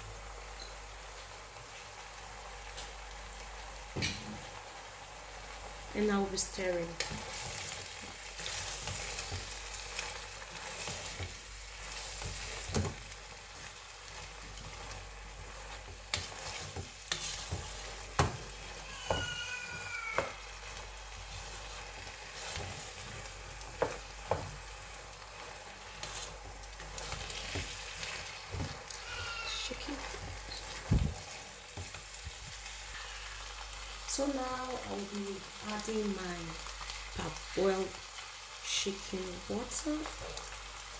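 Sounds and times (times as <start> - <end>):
rice sizzling in a pot: 0.0 - 40.9
wooden spoon scraping a pot: 6.8 - 33.3.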